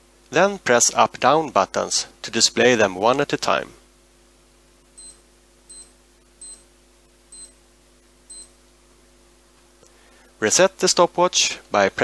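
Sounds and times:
watch key-press beeps: 5.0s - 6.7s, 7.3s - 7.6s, 8.3s - 8.6s.

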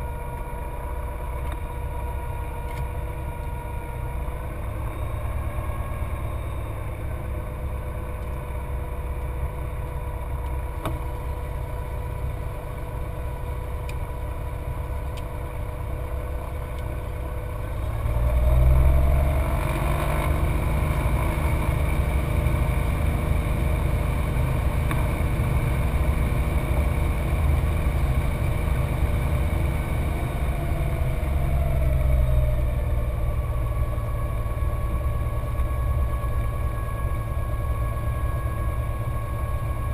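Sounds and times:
propeller plane engine: 0.0s - 39.9s.

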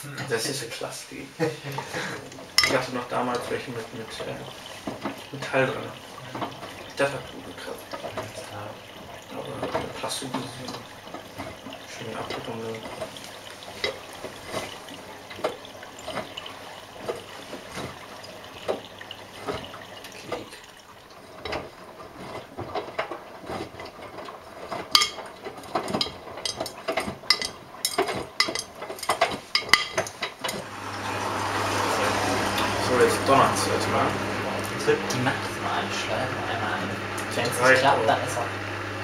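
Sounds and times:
washing machine water sloshing: 0.2s - 39.0s
steady low hum: 30.5s - 39.0s.

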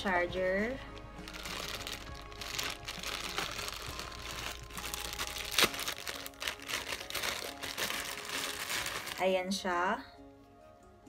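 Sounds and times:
plastic bag crinkling: 0.9s - 9.6s.

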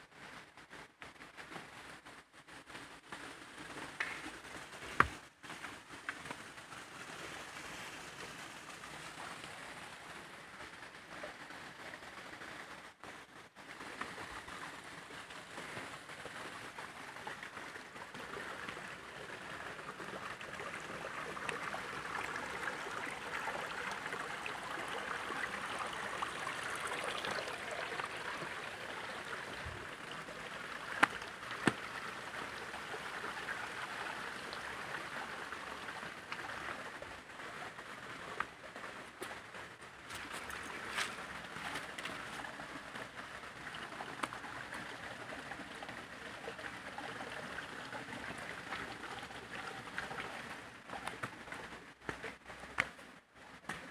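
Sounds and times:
stream water rushing over stones: 1.4s - 53.9s.

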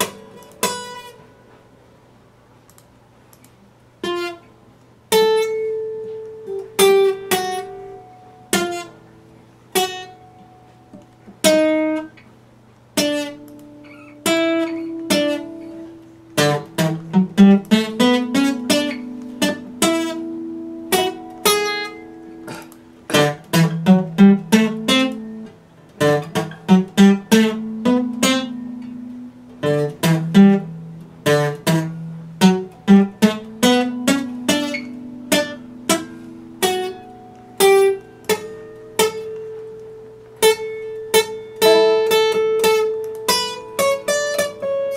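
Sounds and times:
acoustic guitar picking: 0.0s - 2.4s, 3.5s - 44.9s.

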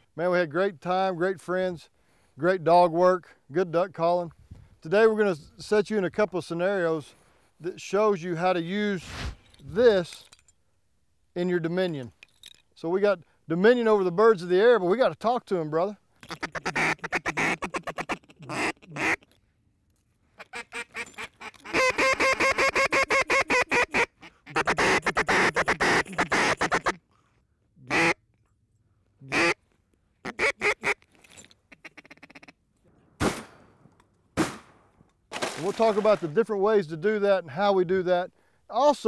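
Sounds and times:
duck call quacks: 16.2s - 19.3s, 20.4s - 27.0s, 27.9s - 28.2s, 29.3s - 29.6s, 30.2s - 31.0s, 31.7s - 32.6s.

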